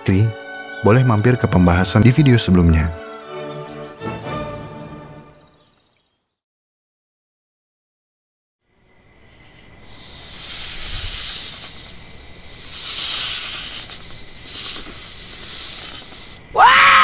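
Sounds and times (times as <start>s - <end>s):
night insects chirring: 8.6s - 17.0s
hissing buzz: 9.8s - 16.5s.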